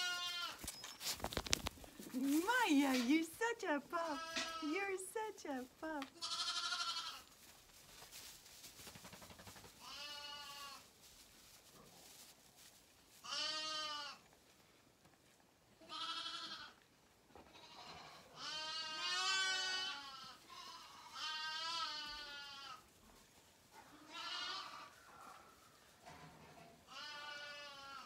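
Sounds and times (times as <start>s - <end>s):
lamb bleating: 0.0s - 0.6s, 4.0s - 4.7s, 6.1s - 7.3s, 9.8s - 10.8s, 13.2s - 14.2s, 15.8s - 16.8s, 17.5s - 22.8s, 24.0s - 24.9s, 26.9s - 28.0s.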